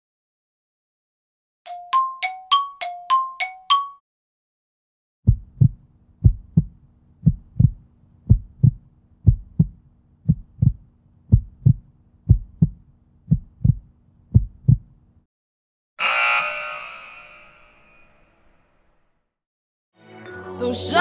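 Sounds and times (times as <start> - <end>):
heartbeat thumps: 5.2 - 15.0.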